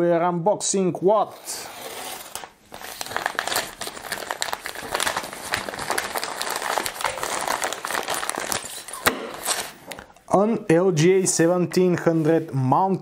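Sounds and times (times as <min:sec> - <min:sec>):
padded envelope crinkling: 0:02.0 - 0:10.0.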